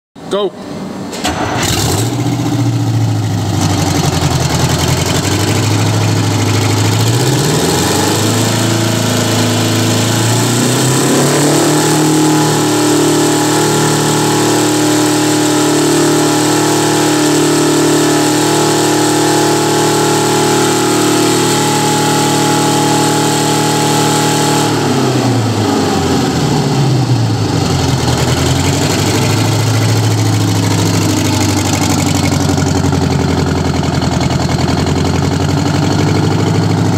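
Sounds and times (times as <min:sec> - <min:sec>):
diesel engine idling and revving: 0:00.6 - 0:36.9.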